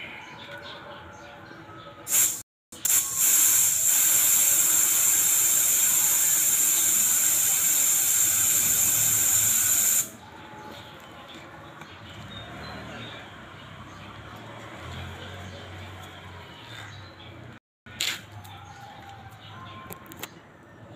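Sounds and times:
air hissing out of tyre valve: 0:02.1 - 0:10.2.

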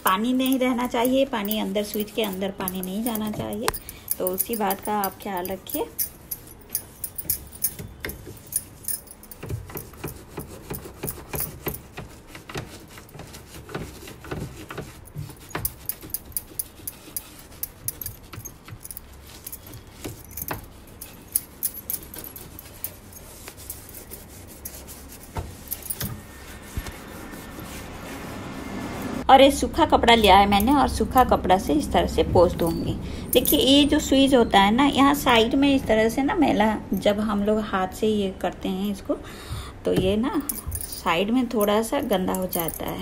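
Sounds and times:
brush knocking against knobs: 0:00.0 - 0:28.4
toothbrush scrubbing plastic: 0:00.0 - 0:28.8.

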